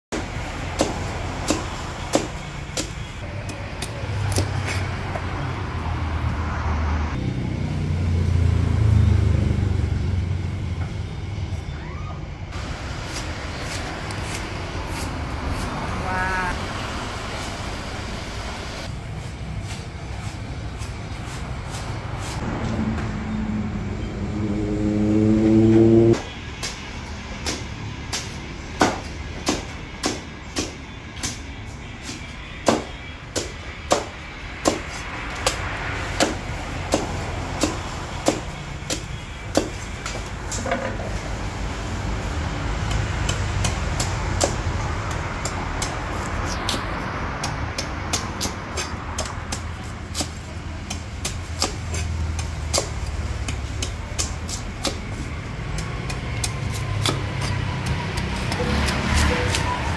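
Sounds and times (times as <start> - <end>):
knife chopping coconut husk: 0.1 - 4.9, 13.0 - 15.8, 32.0 - 40.3, 42.7 - 59.9
rising motor-like tone: 22.4 - 26.2.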